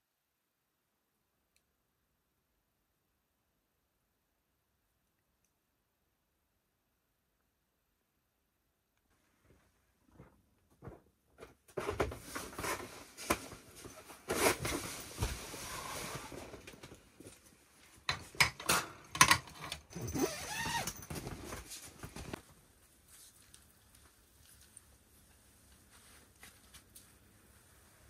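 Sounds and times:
rustling: 0:20.0 - 0:28.0.

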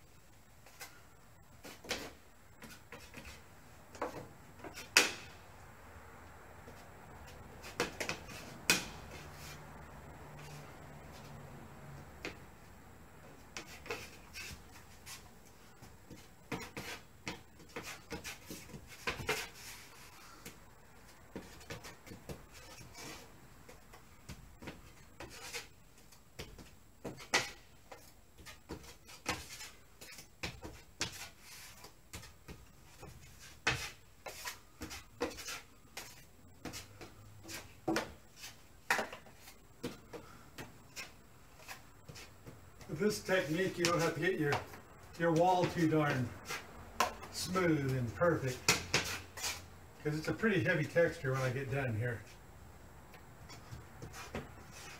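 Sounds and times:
putty knife scraping compound: 0:33.4 - 0:36.8.

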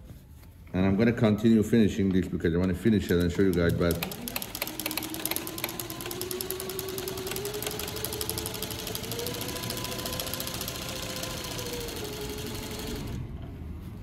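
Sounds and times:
industrial sewing machine running: 0:03.1 - 0:13.2.

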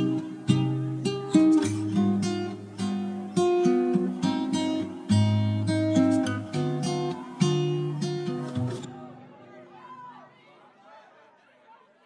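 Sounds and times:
plucked melody music: 0:00.0 - 0:09.1.

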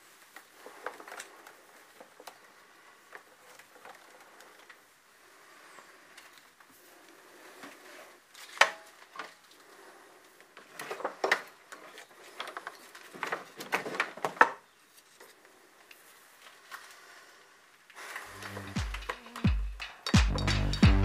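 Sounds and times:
cables and fittings rattling: 0:17.9 - 0:20.8.

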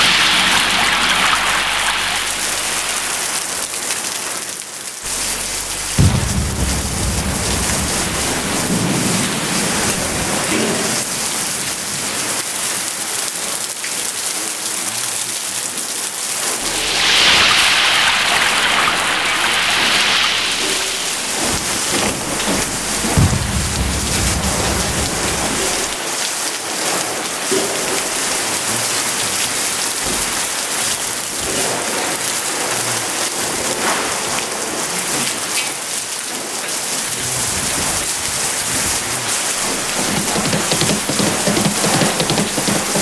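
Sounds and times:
low rumble: 0:00.0 - 0:03.9, 0:05.1 - 0:10.2, 0:16.6 - 0:26.0, 0:39.5 - 0:43.0
heavy rain pouring: 0:00.0 - 0:43.0
short thump: 0:05.1 - 0:08.9, 0:20.4 - 0:26.0, 0:39.6 - 0:43.0.

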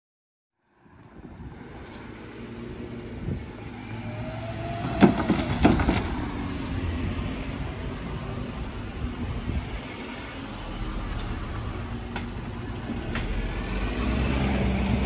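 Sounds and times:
cars driving past humming: 0:00.8 - 0:15.0
tyres thumping over rails: 0:04.6 - 0:06.6.

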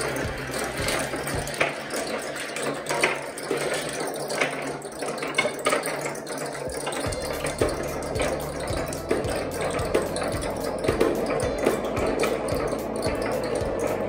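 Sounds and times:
marbles clicking against pegs: 0:00.0 - 0:14.0
marbles rolling on wood: 0:00.0 - 0:14.0.

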